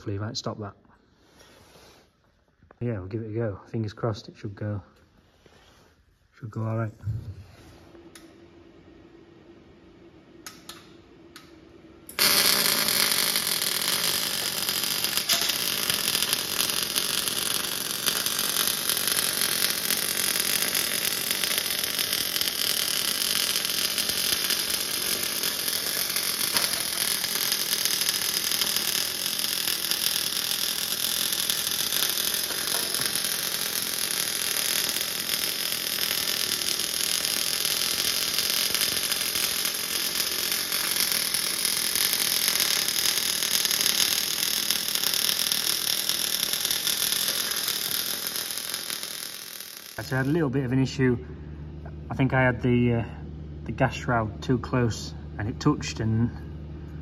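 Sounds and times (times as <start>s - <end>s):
welder arc running: 10.4s - 52.7s.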